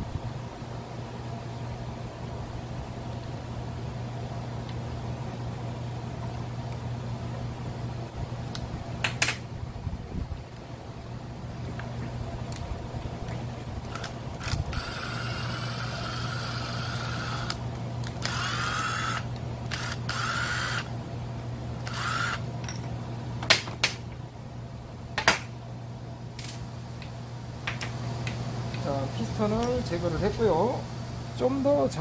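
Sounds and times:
steady low hum: 0.0 - 32.0
cordless drill motor whine: 13.9 - 20.9, 21.8 - 22.4.

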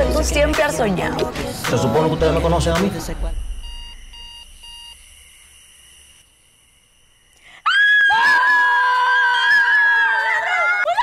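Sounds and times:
digital alarm clock beeping: 3.5 - 5.1
high-pitched scream: 7.6 - 11.0.

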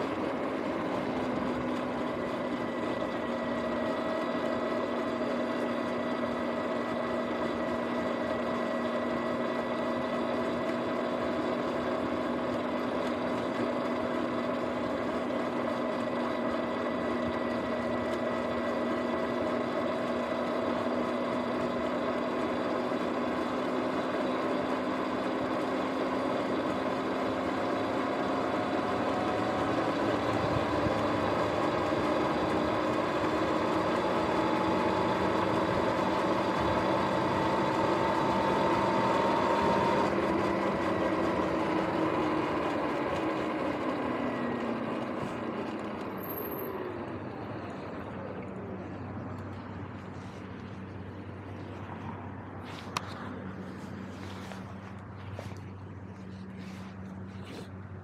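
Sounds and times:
electric motor whine: 0.0 - 58.0
road and wind noise: 0.0 - 58.0.

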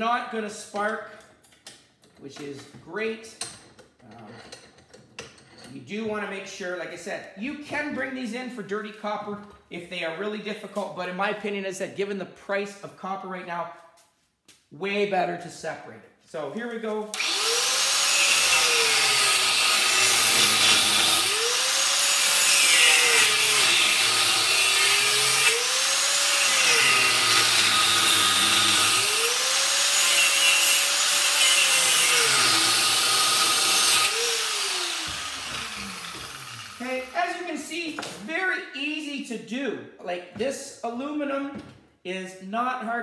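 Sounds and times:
grinder cutting metal: 17.1 - 37.2.

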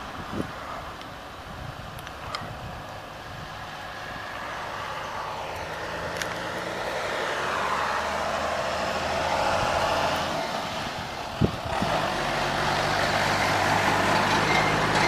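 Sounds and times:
truck engine running: 8.1 - 15.0.

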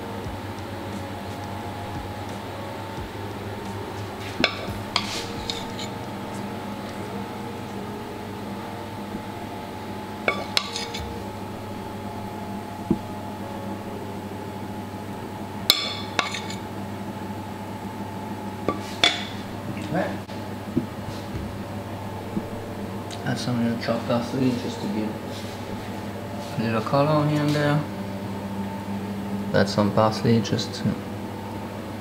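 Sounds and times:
steady low hum: 0.0 - 32.0
metal spoon clinking on dishes: 4.4 - 5.9, 10.3 - 11.1, 15.7 - 16.6.

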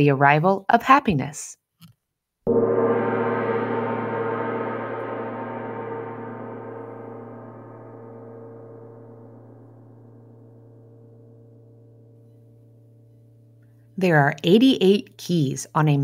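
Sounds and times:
metal gong ringing: 2.5 - 13.9.

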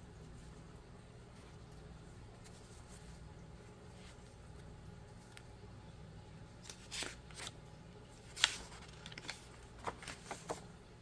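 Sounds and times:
paper sheets rustling: 6.6 - 10.8.

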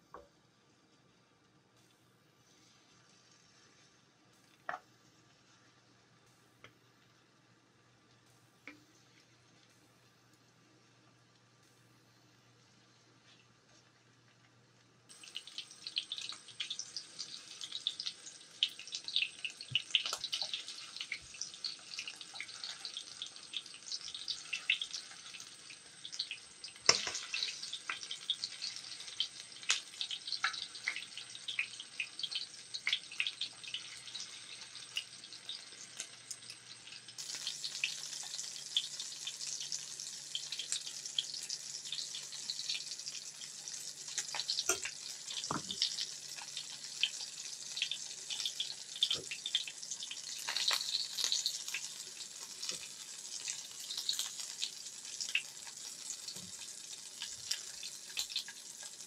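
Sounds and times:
chicken frying in hot oil: 0.0 - 59.0
metal tongs tapping pan: 26.9 - 27.5, 44.6 - 45.9.

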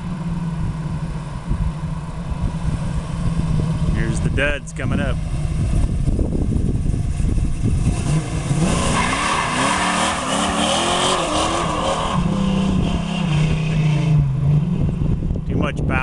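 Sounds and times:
car engine revving: 0.0 - 15.4.

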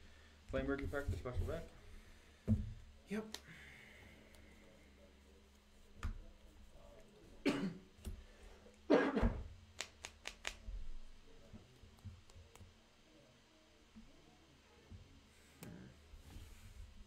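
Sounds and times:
person coughing: 7.4 - 7.9, 8.9 - 9.4.

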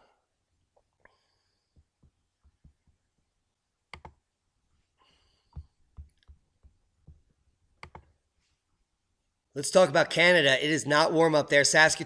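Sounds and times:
computer mouse clicks: 3.9 - 4.2, 7.8 - 8.1.

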